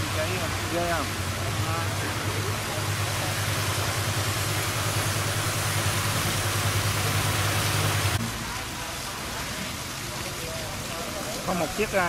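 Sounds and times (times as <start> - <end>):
engine humming: 0.0 - 8.7
water rushing through sluice gate: 0.0 - 12.0.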